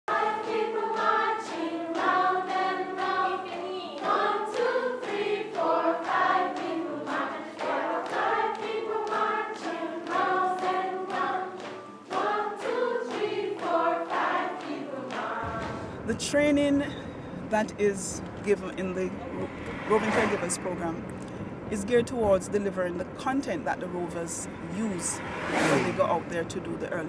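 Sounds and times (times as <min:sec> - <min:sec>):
people clapping: 0:00.1 - 0:15.8
group of adults singing: 0:00.1 - 0:16.2.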